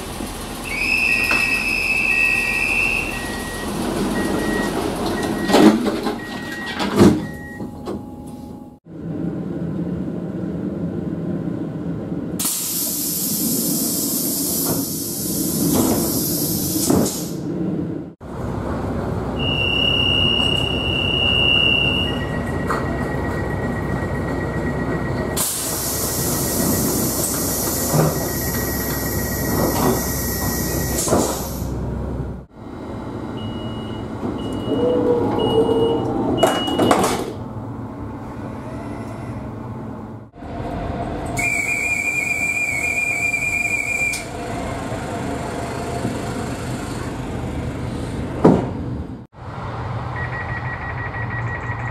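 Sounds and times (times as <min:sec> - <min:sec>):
train doors hissing shut: 0:00.7 - 0:03.5, 0:12.4 - 0:17.5, 0:25.3 - 0:31.8
conductor's whistle: 0:00.7 - 0:03.6, 0:19.4 - 0:22.5, 0:41.4 - 0:44.3
short high door beeps: 0:00.7 - 0:08.3, 0:19.4 - 0:25.5, 0:27.8 - 0:31.0, 0:33.4 - 0:37.2, 0:50.2 - 0:51.9
door warning tone: 0:00.7 - 0:08.7, 0:19.4 - 0:31.0, 0:33.4 - 0:37.3.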